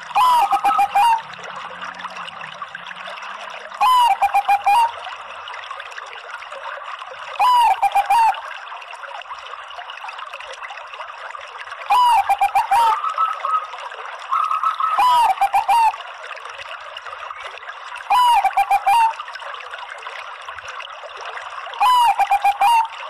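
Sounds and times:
water trickling: 0.0s - 23.0s
dove cooing: 0.1s - 1.2s, 7.4s - 8.4s, 11.9s - 13.7s, 14.3s - 16.0s, 18.1s - 19.2s, 21.8s - 22.9s.

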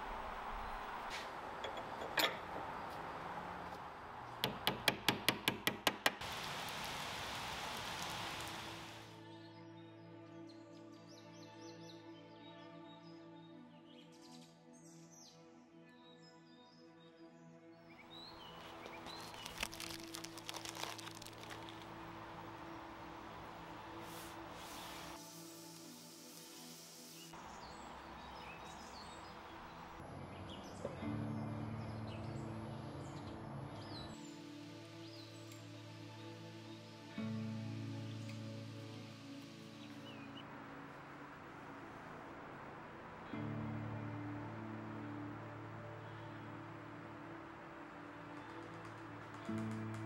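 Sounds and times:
rain falling on pavement: 6.2s - 9.1s, 18.6s - 22.0s
tack cloth crinkling: 18.5s - 22.0s.

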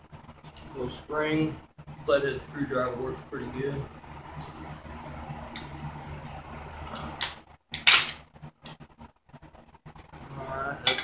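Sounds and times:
low steady hum: 0.0s - 11.0s
metal bike parts clanking: 10.8s - 11.0s.

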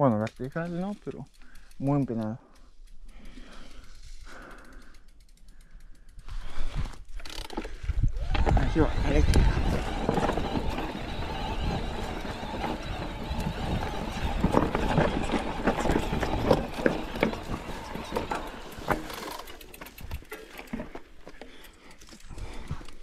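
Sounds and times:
bike tyres crunching over rocks: 6.3s - 23.0s
clicks and rattles: 8.3s - 23.0s.

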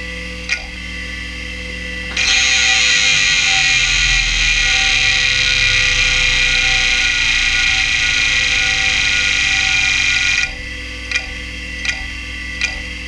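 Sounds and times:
hard drive head chattering: 2.1s - 10.5s
hard drive spindle whirring: 2.1s - 10.8s.

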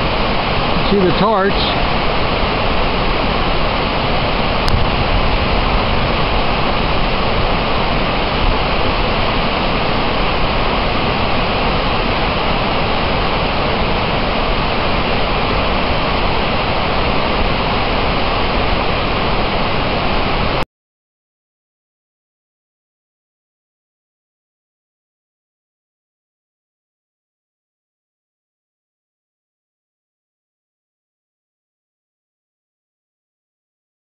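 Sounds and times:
waterfall rushing: 0.0s - 20.6s.

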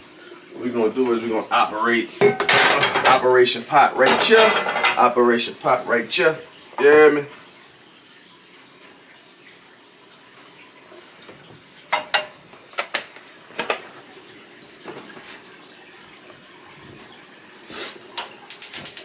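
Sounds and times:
kitchenware clinking: 2.2s - 3.3s, 4.0s - 5.2s, 11.9s - 13.9s
steady hiss: 17.7s - 19.0s.

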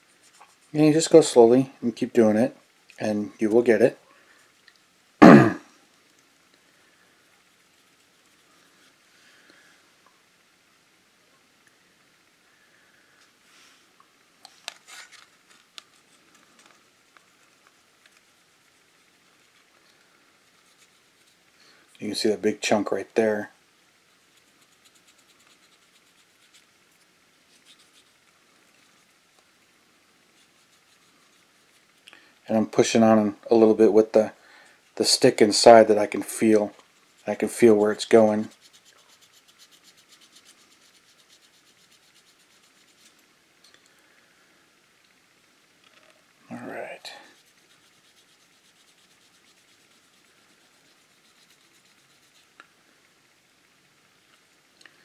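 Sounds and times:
cotton swab rubbing plastic: 0.0s - 1.3s, 14.5s - 19.7s, 20.5s - 21.5s, 24.1s - 29.4s, 30.3s - 32.1s, 36.2s - 43.2s, 47.2s - 52.6s.

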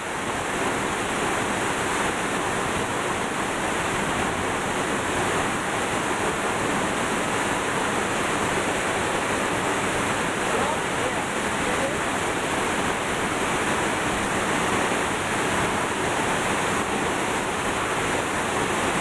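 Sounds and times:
waterfall rushing: 0.0s - 19.0s.

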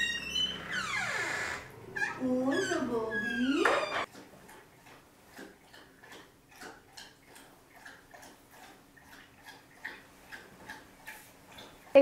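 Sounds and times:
dog lapping water: 4.1s - 12.0s.

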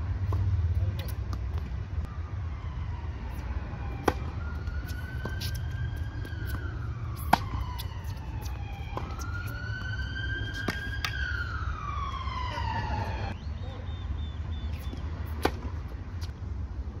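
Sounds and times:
siren wailing: 2.1s - 13.4s
tennis ball hit by racket: 4.0s - 9.6s, 10.4s - 11.2s, 14.8s - 15.9s.

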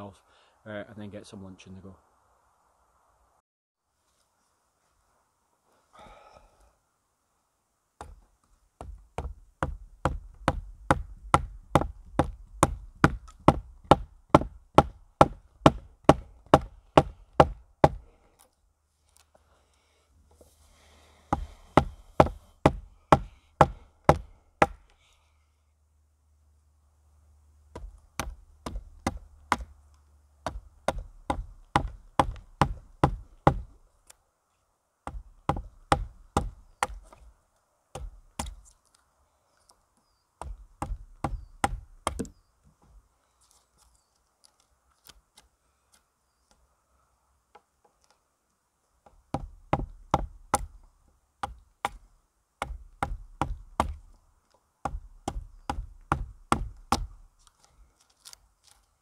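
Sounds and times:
mallet striking wood chisel: 8.8s - 18.0s, 21.3s - 24.8s, 27.7s - 29.7s, 30.4s - 33.7s, 35.1s - 37.0s, 40.4s - 42.4s, 49.3s - 50.7s, 52.6s - 54.0s, 54.8s - 57.1s.

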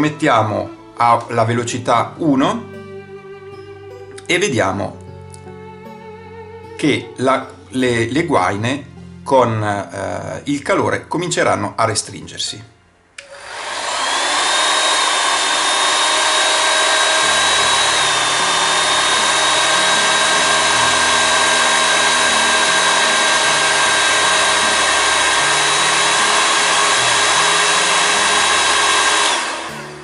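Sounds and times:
hot air gun blowing: 13.2s - 30.0s.

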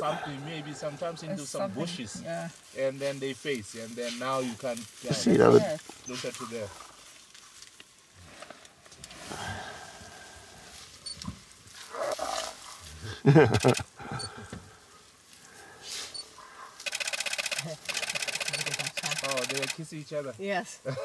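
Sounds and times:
hyena growling and snarling: 11.8s - 13.4s.

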